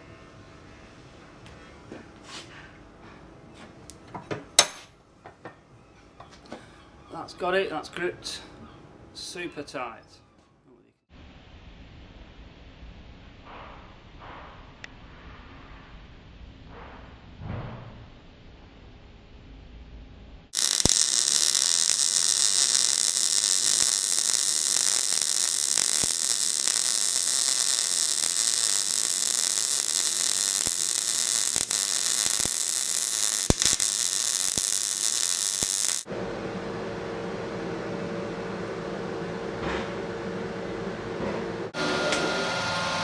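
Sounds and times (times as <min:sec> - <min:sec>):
steady machine hum: 0:20.2 - 0:43.0
arc welding crackling hiss: 0:20.5 - 0:36.1.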